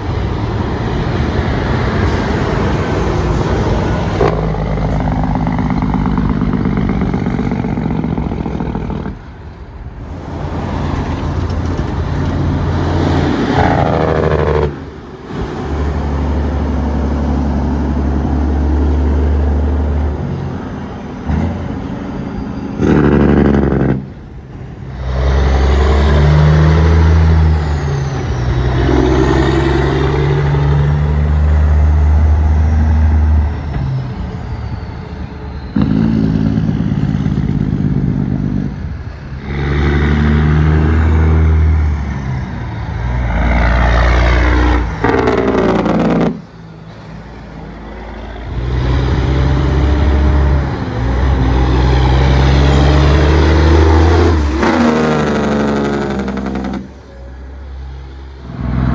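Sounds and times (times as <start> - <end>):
truck diesel engines rumbling: 0.0 - 58.9.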